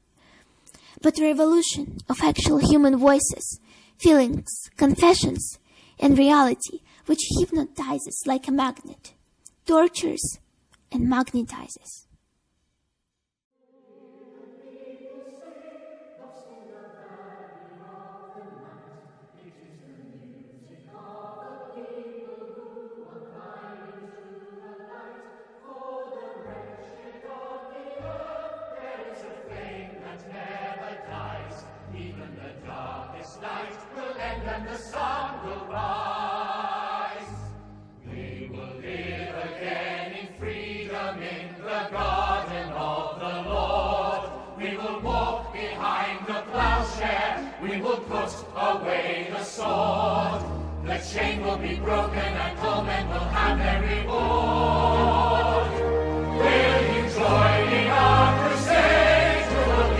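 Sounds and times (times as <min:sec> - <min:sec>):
choir singing slow chords: 0:13.6 - 0:59.9.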